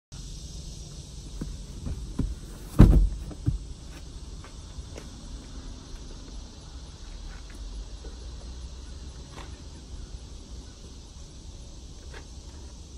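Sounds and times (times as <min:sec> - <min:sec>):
seatback landing thud: 0:01.3 - 0:03.8.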